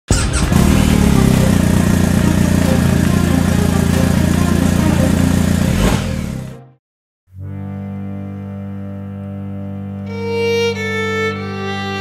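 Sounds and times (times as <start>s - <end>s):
motorcycle engine running: 0.1s - 6.6s.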